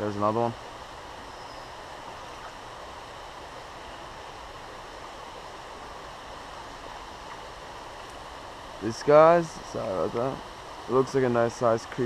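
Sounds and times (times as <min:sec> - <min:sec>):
creek water rushing: 0:00.0 - 0:12.0.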